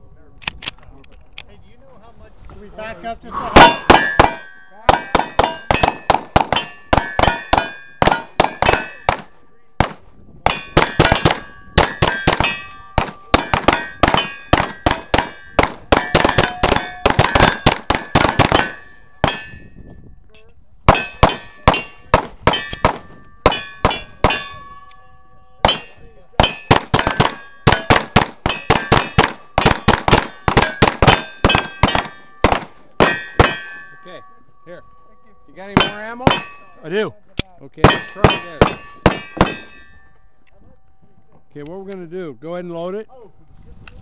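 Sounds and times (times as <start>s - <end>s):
ring of struck steel: 3.5s - 9.3s, 10.5s - 19.9s, 20.9s - 37.0s, 37.8s - 41.1s
pistol shots: 3.6s - 19.6s, 20.9s - 24.6s, 25.6s - 34.2s, 37.8s - 40.0s.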